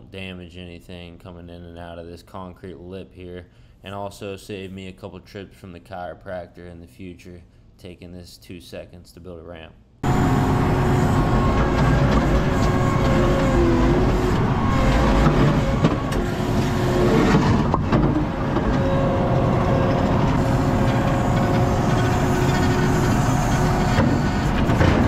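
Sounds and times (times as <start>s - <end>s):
loader engine and hydraulics: 10.0s - 25.0s.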